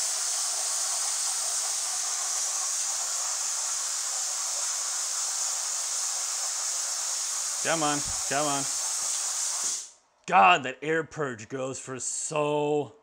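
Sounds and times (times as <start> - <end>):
plasma cutter air hiss: 0.0 - 10.0.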